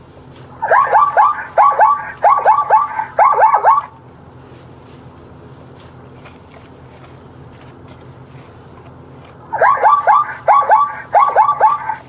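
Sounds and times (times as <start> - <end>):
faint steady background noise: 0.0 - 12.0
zebra barking: 0.6 - 4.0, 6.2 - 12.0.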